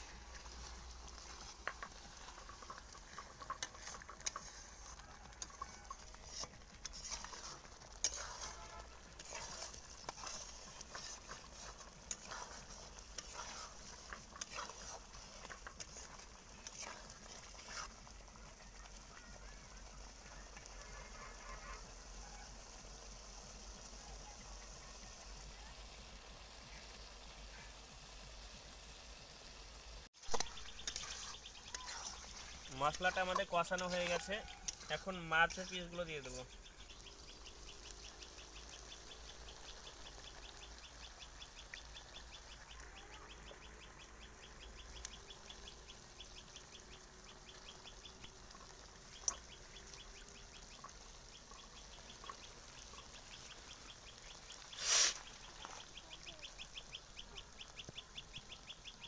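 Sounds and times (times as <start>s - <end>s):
spatula scraping and knocking pan: 0.0s - 18.5s, 30.2s - 39.7s
paste sizzling in oil: 0.0s - 59.0s.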